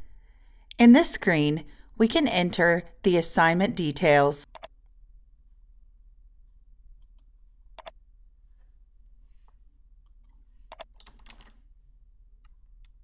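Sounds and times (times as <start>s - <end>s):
computer mouse clicks: 4.4s - 4.7s, 7.0s - 8.0s, 10.0s - 11.6s.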